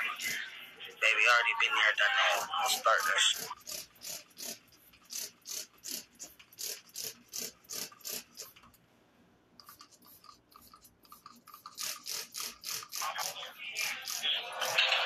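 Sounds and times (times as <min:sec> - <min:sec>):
scratchy strokes: 0:02.0 - 0:08.7.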